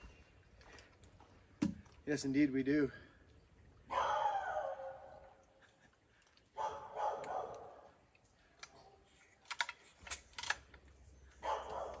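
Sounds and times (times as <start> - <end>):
chainsaw clicks and rattles: 9.4 - 11.0.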